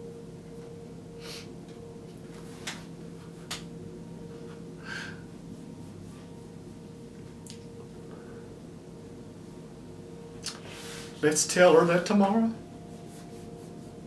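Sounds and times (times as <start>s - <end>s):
steady low hum: 0.0s - 14.0s
man sniffing and breathing: 1.2s - 1.5s.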